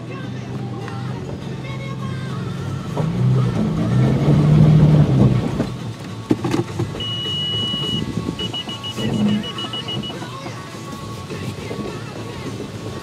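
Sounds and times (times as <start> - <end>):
car engine running: 0.0 - 13.0
electronic beeps: 7.0 - 10.4.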